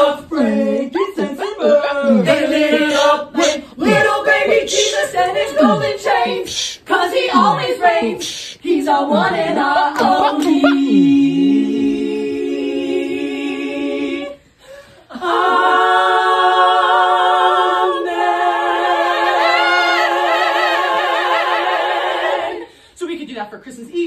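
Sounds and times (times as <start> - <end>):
women singing in harmony: 0.0 - 22.7
breath: 8.2 - 8.6, 14.4 - 15.1, 22.7 - 23.0.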